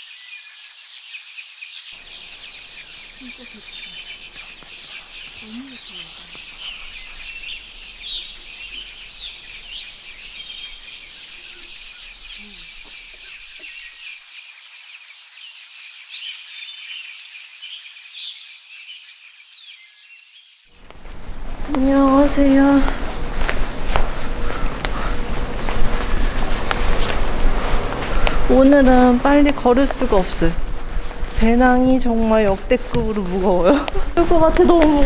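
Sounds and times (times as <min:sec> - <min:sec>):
birds chirping and singing: 0:00.1 - 0:20.6, 0:21.2 - 0:35.0
high-pitched insect drone: 0:02.0 - 0:16.0.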